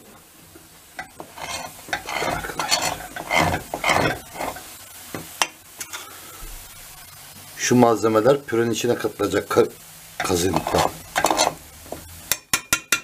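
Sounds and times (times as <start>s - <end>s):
spoon scraping metal pot: 1.0s - 4.7s, 10.2s - 11.6s.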